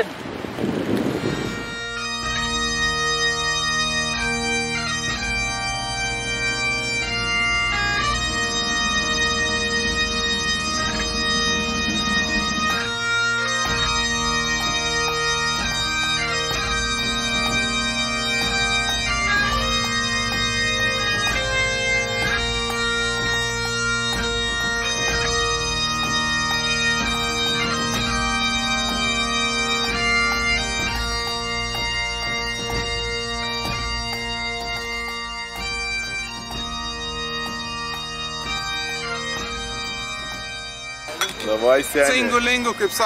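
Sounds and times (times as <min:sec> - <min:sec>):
bagpipes playing a slow tune: 0:00.9 - 0:43.0.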